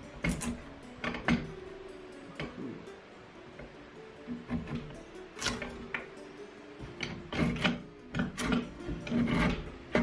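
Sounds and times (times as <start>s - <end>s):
drawknife scraping wood: 4.3s - 6.0s, 7.0s - 10.0s.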